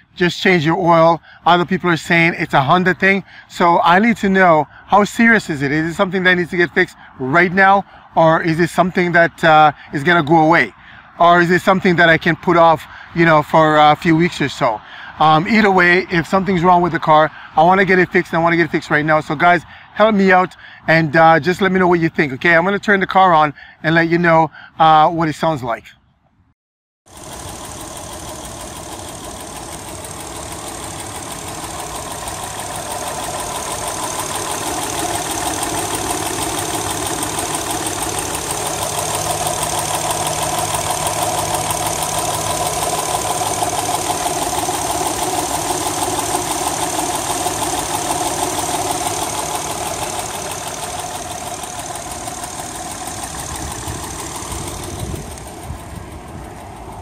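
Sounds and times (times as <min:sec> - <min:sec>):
loud rapid engine ticking: 0:00.0 - 0:20.8, 0:27.1 - 0:57.0
car engine idling: 0:27.1 - 0:57.0.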